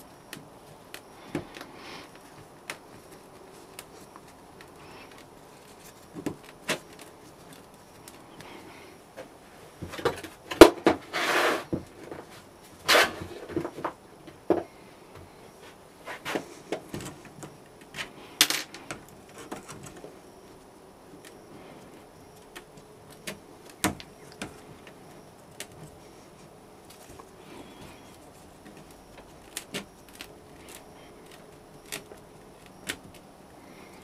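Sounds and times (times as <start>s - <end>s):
sand rustling on metal tray: 11.0s - 11.8s.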